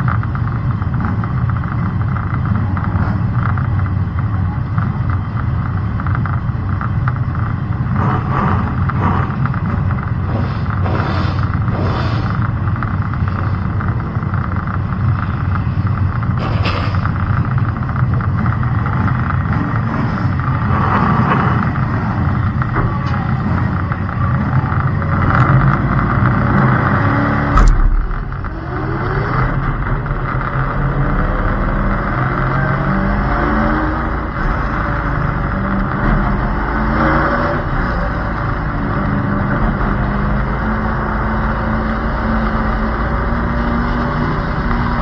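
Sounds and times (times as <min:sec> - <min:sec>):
race car engine revving: 0:00.0 - 0:45.0
sharp knock: 0:27.6 - 0:28.3.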